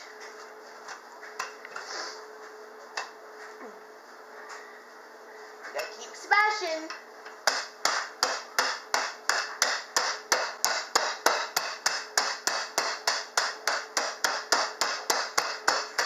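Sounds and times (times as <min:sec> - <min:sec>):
rolling pin striking bag of pretzels: 0:07.5 - 0:16.0.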